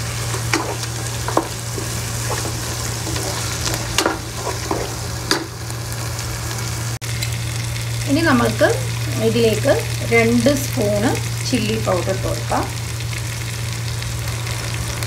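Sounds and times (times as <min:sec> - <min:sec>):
spatula scraping a pan: 0:00.0 - 0:05.5
food sizzling in oil: 0:00.0 - 0:15.0.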